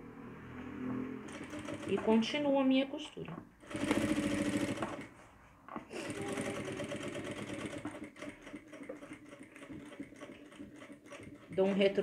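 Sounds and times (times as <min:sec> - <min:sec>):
sewing machine running: 0:01.3 - 0:02.2, 0:03.6 - 0:05.1, 0:06.0 - 0:12.0.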